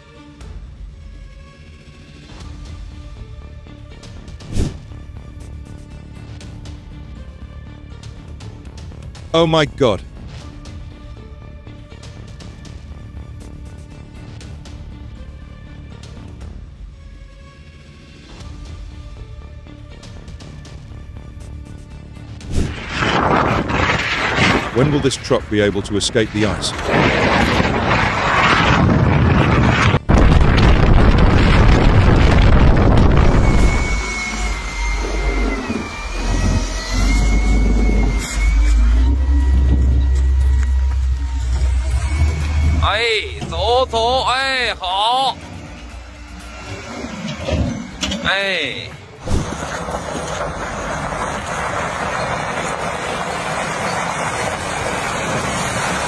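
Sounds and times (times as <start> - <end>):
wheels rushing on icy road: 22.4 - 56.0
wind buffeting microphone: 22.6 - 38.3
steady high whine: 22.6 - 56.0
diesel truck engine under load: 31.7 - 43.9, 49.0 - 56.0.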